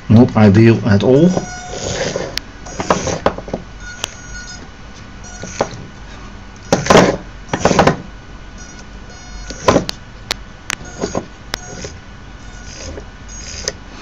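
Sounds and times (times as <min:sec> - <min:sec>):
small motors whining: 0:01.3 - 0:06.0, 0:06.6 - 0:08.0, 0:08.6 - 0:10.0, 0:10.7 - 0:14.0.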